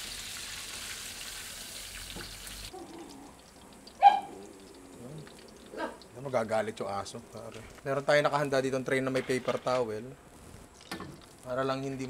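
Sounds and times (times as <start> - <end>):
chicken deep-frying sizzle: 0.0 - 7.5
dog bark: 4.0 - 4.4.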